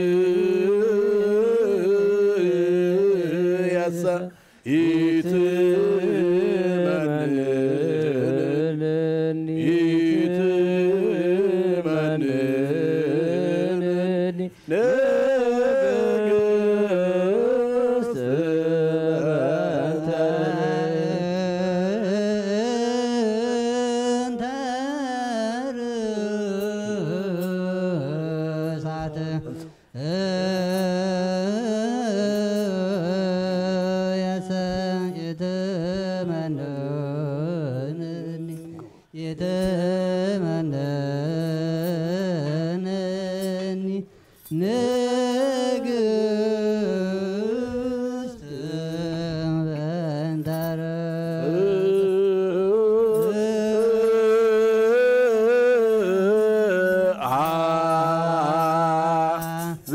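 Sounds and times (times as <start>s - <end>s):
men chanting a hymn in unison: 0.0s - 43.0s.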